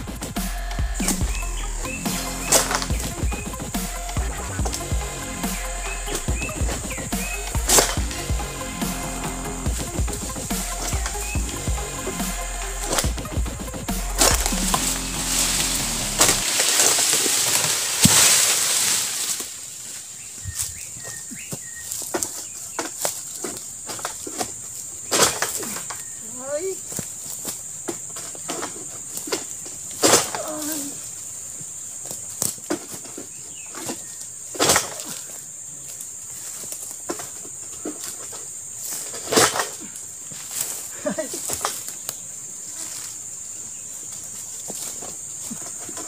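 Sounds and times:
sickle scraping knocks: 0.0s - 19.6s
high insect drone: 0.0s - 46.0s
palm fronds rustling: 0.0s - 46.0s.

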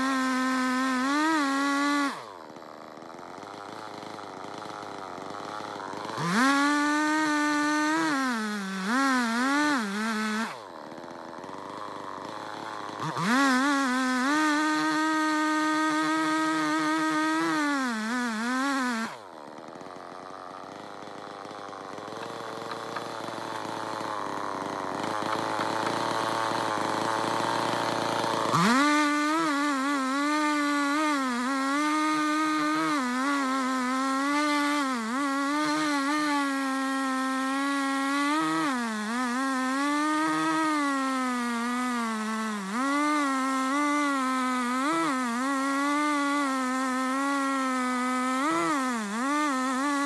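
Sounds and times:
chainsaw cutting wood: 0.0s - 50.0s.

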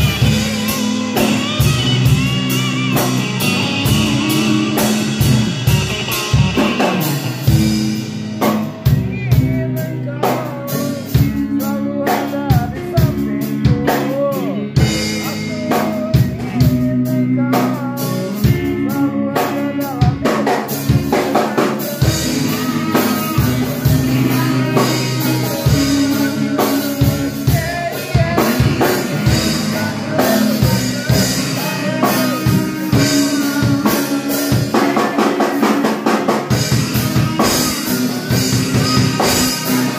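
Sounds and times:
drum kit playing: 0.0s - 39.9s
electric guitar: 0.0s - 39.9s.

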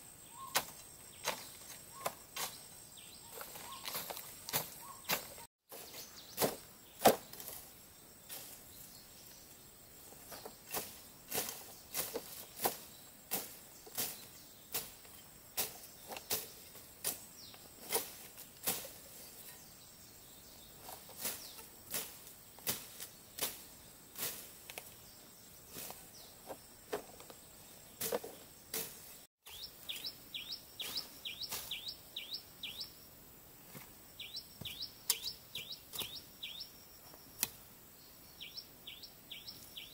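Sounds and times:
bird chirping: 0.0s - 17.8s, 29.4s - 33.1s, 34.2s - 39.9s.

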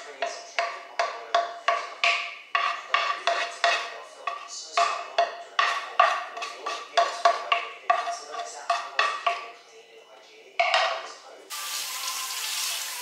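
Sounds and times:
wooden spatula knocking on a pan: 0.2s - 9.5s.

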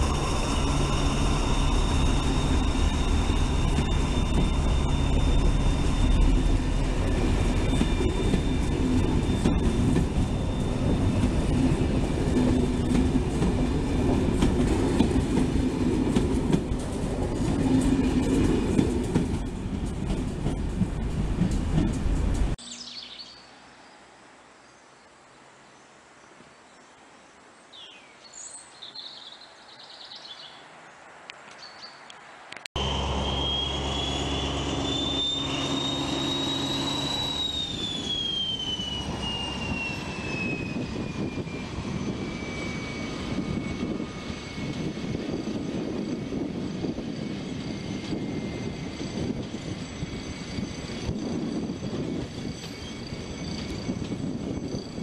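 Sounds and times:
model train whining: 0.0s - 13.2s, 32.8s - 55.0s.

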